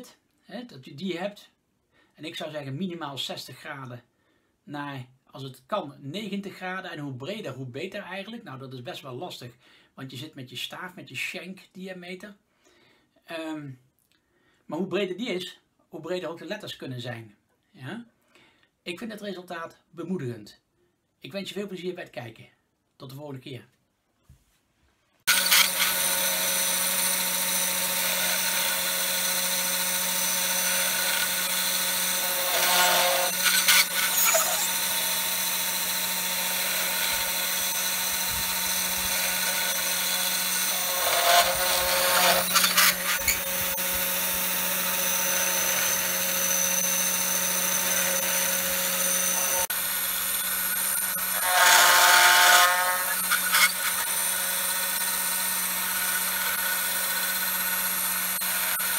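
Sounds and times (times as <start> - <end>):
cnc router spindle whine: 25.3 - 58.9.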